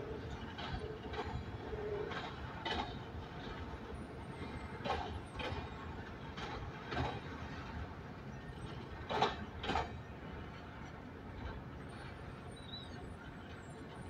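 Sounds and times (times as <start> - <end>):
train wheels knocking on rails: 0.2 - 8.0, 8.6 - 10.6.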